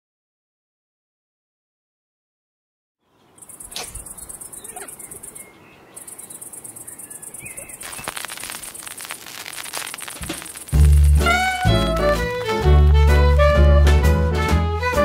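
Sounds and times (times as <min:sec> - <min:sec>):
bird calls: 0:03.0 - 0:08.9
crickets chirring: 0:03.4 - 0:12.6
gramophone record crackle and hiss: 0:07.3 - 0:13.6
gramophone music: 0:10.7 - 0:15.0.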